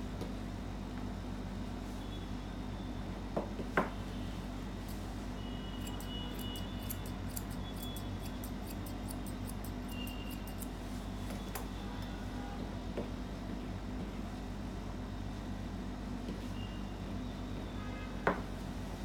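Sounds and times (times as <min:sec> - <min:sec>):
scissors snipping hair: 0:05.8 - 0:10.7.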